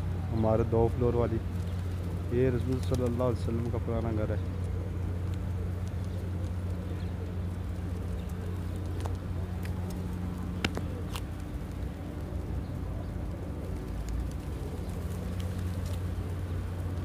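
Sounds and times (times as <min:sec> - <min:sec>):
distant traffic hum: 0:00.0 - 0:17.0
faint pigeon clicks: 0:01.4 - 0:17.0.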